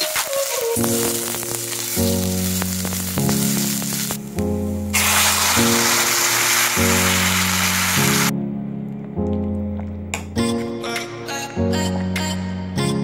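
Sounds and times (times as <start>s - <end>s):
vegetables sizzling in a pan: 0.0s - 8.3s
liquid pouring into a pan: 5.0s - 8.3s.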